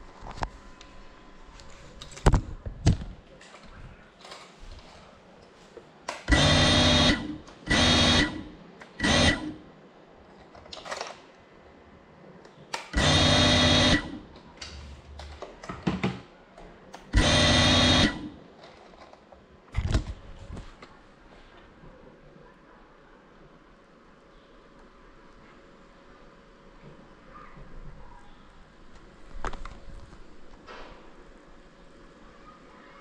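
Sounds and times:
drone motors whirring: 0:06.3 - 0:09.6, 0:12.9 - 0:14.3, 0:17.1 - 0:18.4.

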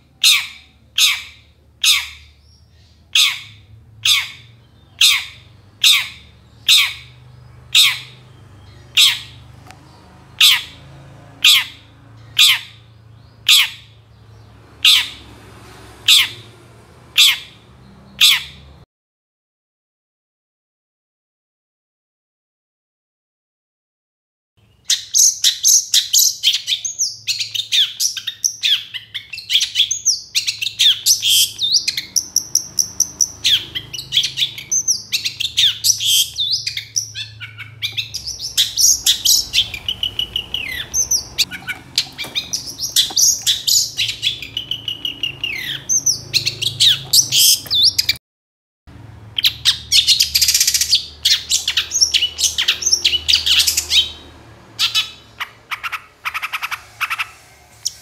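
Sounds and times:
shrike singing: 0:24.9 - 0:48.2.

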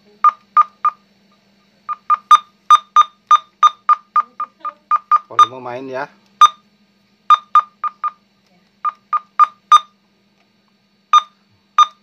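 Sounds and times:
faint steady hum: 0:00.0 - 0:12.0
radio key beeps: 0:00.2 - 0:01.0, 0:01.9 - 0:05.6, 0:06.4 - 0:06.6, 0:07.3 - 0:08.2, 0:08.8 - 0:10.0, 0:11.1 - 0:12.0.

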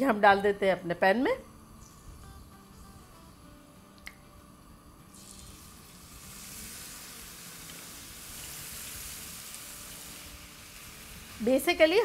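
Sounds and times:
chicken sizzling in oil: 0:05.1 - 0:12.0.

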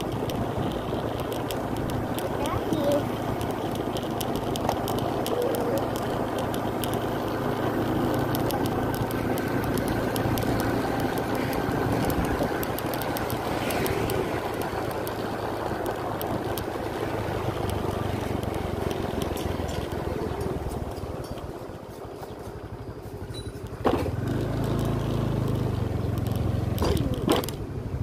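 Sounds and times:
motorcycle engine running: 0:00.0 - 0:28.0
wind noise: 0:08.4 - 0:18.2.

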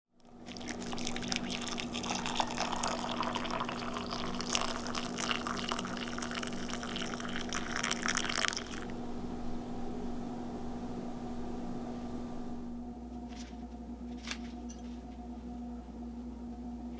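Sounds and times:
water pouring into mug: 0:00.2 - 0:08.9.

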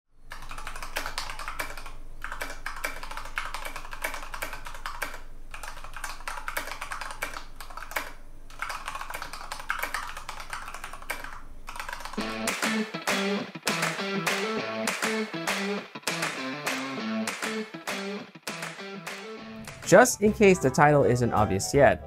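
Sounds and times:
mechanical keyboard typing: 0:00.3 - 0:12.2.

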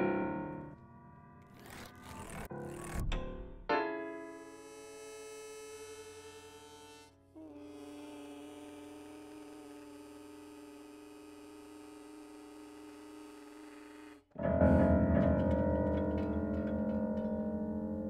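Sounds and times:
piano: 0:00.0 - 0:01.8, 0:02.5 - 0:04.8, 0:14.3 - 0:18.0
harmonica: 0:04.1 - 0:15.4.

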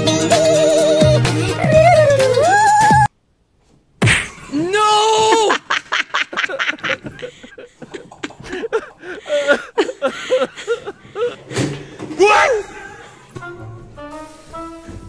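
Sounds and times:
man laughing: 0:04.4 - 0:11.6.

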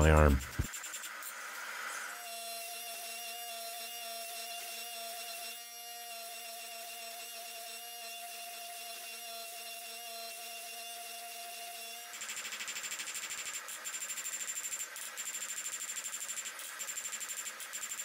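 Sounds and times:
fast pulsing mechanical sound: 0:00.1 - 0:02.0, 0:12.1 - 0:18.0.

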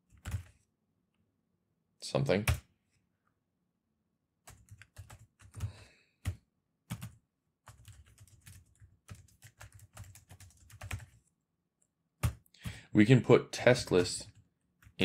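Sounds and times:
typing on computer keyboard: 0:00.1 - 0:00.6, 0:04.5 - 0:11.2, 0:12.2 - 0:12.5.

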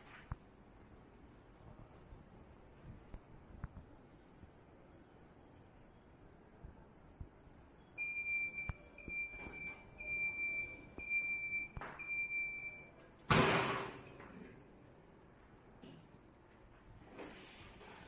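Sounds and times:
heat press control panel beeps: 0:07.9 - 0:13.0.

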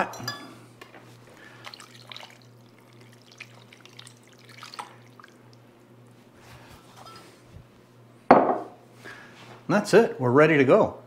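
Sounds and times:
liquid trickling and dripping: 0:01.4 - 0:05.7
small splashes: 0:01.4 - 0:05.7.

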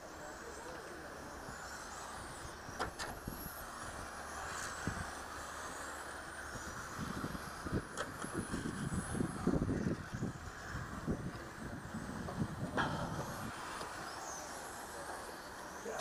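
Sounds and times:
rc car motors whining: 0:00.0 - 0:16.0
wind thumping on microphone: 0:07.0 - 0:13.6.

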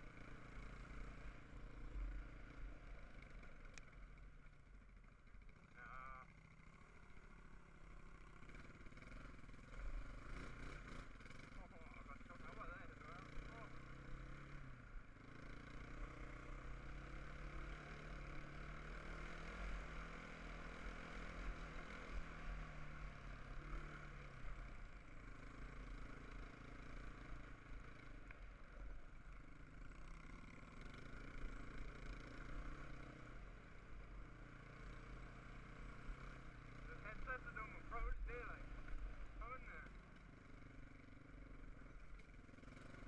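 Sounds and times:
quad bike engine cruising: 0:00.0 - 0:43.0.

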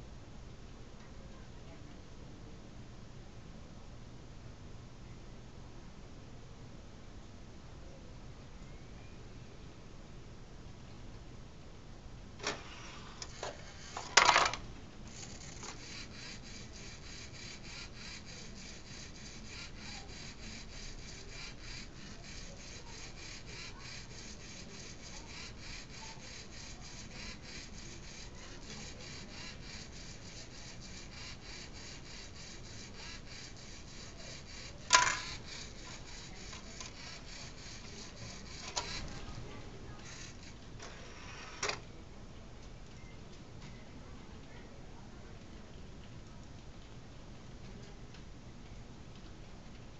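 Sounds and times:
plastic clatter of disc falling: 0:13.9 - 0:14.6, 0:34.9 - 0:35.2
rapid mechanical ticking: 0:15.1 - 0:39.3.

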